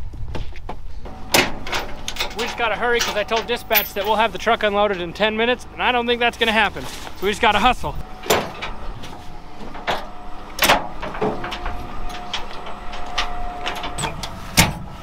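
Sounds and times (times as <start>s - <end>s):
ratchet straps clanking on metal: 1.0s - 5.2s, 8.2s - 15.0s.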